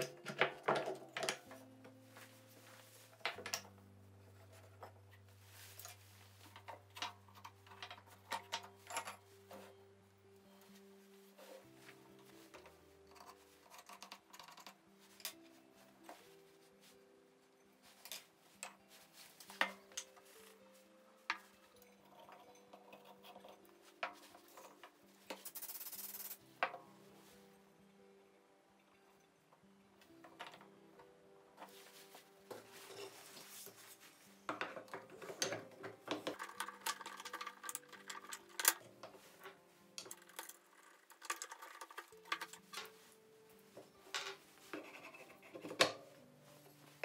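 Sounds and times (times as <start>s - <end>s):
wooden parts clicking and knocking: 0.0s - 1.9s, 3.2s - 5.1s, 6.4s - 9.6s, 12.5s - 15.4s, 34.5s - 43.0s
faint background music: 0.0s - 47.0s.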